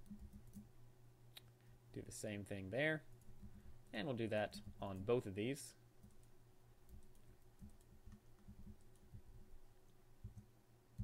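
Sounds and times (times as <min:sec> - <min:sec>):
keyboard and mouse clicks: 0:00.0 - 0:00.7, 0:06.9 - 0:11.0
faint steady hum: 0:00.0 - 0:11.0.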